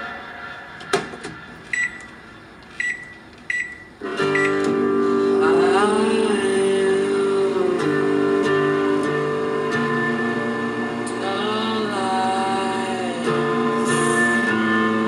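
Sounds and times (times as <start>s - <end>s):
microwave keypad beeps: 1.7s - 2.2s, 2.8s - 4.7s
guitar music: 3.9s - 15.0s.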